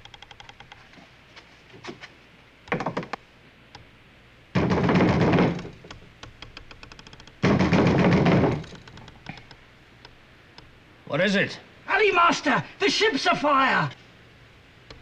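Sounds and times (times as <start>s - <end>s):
fists pounding on wooden door: 4.6s - 5.8s, 7.4s - 8.7s.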